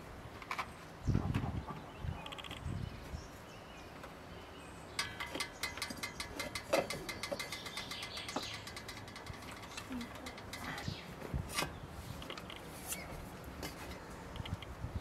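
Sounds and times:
metal lid clicking and rattling: 5.0s - 10.9s.

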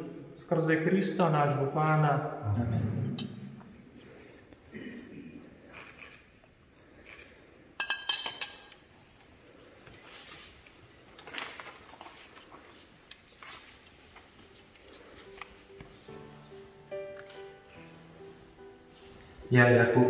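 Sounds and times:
metal objects clinking on a dish: 7.8s - 8.8s
faint rustling and handling: 9.0s - 19.5s.

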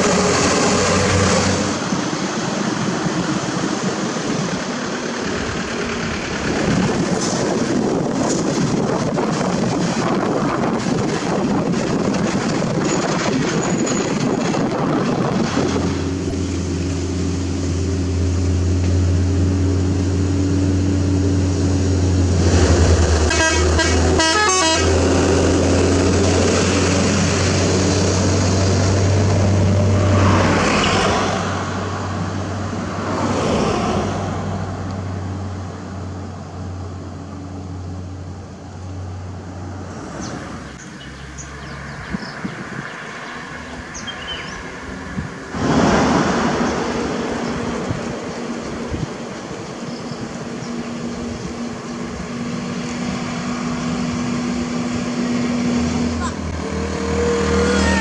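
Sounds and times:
road noise: 0.0s - 58.0s
truck diesel engine drone: 0.0s - 58.0s
vehicles passing by: 0.0s - 58.0s
wind: 0.0s - 58.0s
horn tooting: 23.2s - 25.2s, 56.1s - 58.0s.

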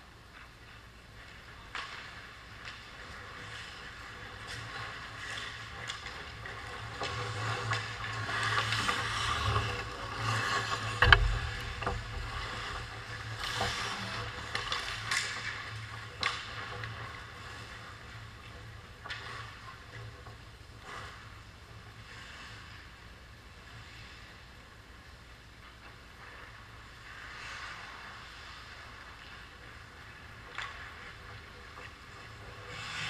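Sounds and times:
steady low hum: 0.0s - 33.0s
sticks and puck clacking: 0.3s - 20.5s
skates scraping on ice: 0.4s - 23.0s.

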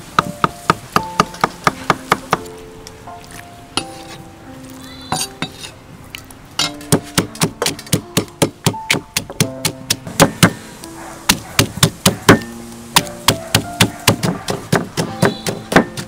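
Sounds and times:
soft background music: 0.0s - 16.0s
pestle pounding in stone mortar: 0.1s - 2.4s, 6.6s - 10.6s, 11.3s - 16.0s
cleaver chopping on wooden board: 6.6s - 10.6s, 11.3s - 16.0s.

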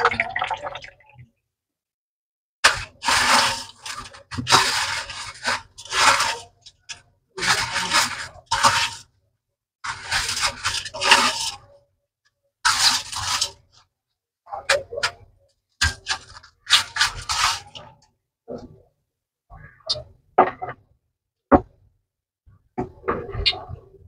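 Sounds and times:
bread crumbs rustling in a bowl: 2.8s - 6.6s, 7.4s - 9.1s, 15.8s - 18.0s.

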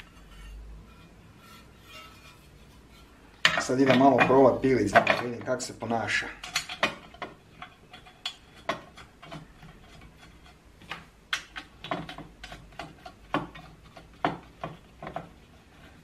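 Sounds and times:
metallic clicks and knocks: 3.0s - 5.6s, 6.3s - 15.4s.

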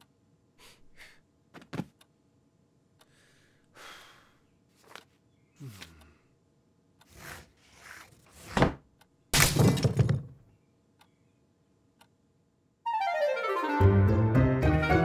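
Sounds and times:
music: 12.8s - 15.0s.

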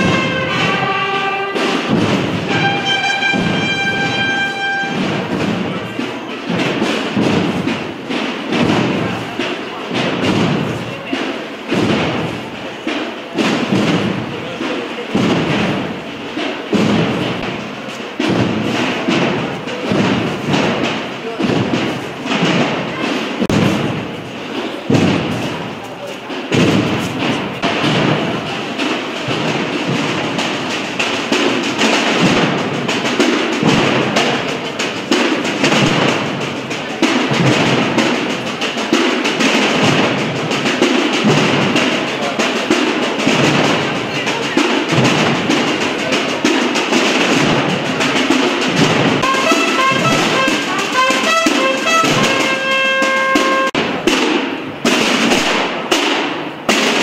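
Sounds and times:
brass instrument phrase: 0.0s - 5.4s, 49.2s - 53.8s
massed drums rolling: 0.0s - 57.0s.

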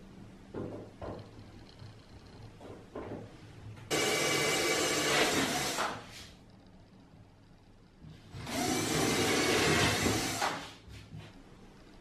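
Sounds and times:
drill driving screws into wood: 3.9s - 6.0s, 8.4s - 10.6s.

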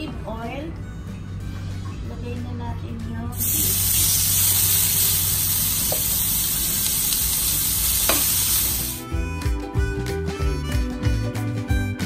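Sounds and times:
music: 0.0s - 12.0s
meat and garlic sizzling in oil: 3.4s - 9.0s.

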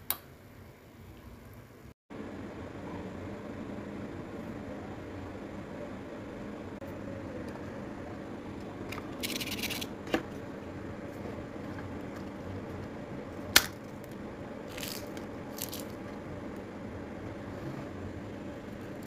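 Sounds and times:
crackers crackling and snapping: 13.5s - 16.1s.

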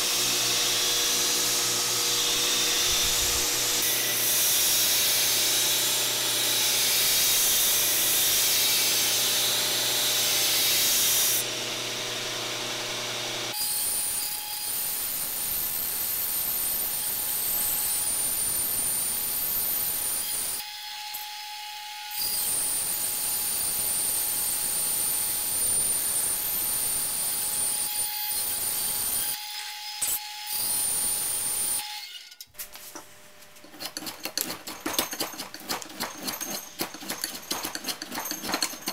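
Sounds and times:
band saw cutting wood: 0.0s - 15.6s, 33.6s - 38.9s
belt grinder grinding steel: 33.6s - 38.9s.

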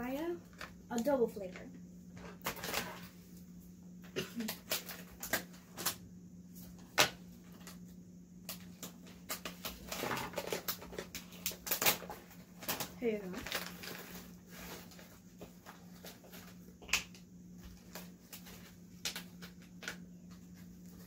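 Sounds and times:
plastic bag crinkling: 8.6s - 16.7s.

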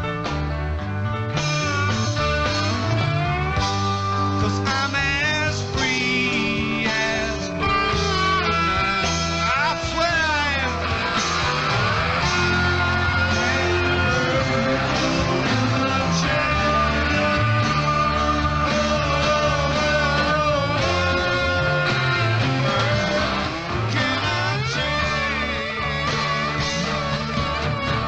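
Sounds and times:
rock music with sliding guitar: 0.0s - 28.0s.

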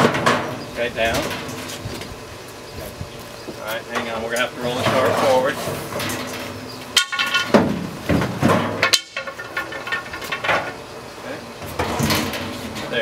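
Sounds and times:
metal cart clunking and scraping: 0.0s - 2.1s, 3.9s - 10.8s, 11.6s - 13.0s.

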